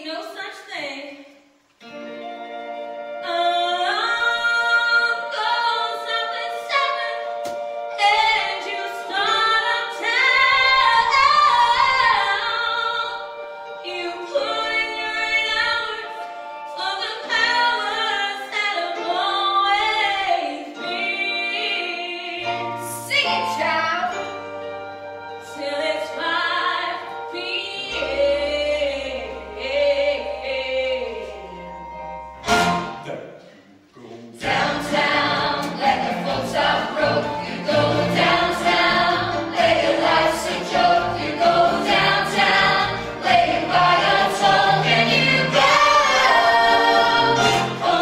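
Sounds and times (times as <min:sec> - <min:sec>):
women singing in close harmony: 0:08.0 - 0:16.2, 0:34.4 - 0:48.0.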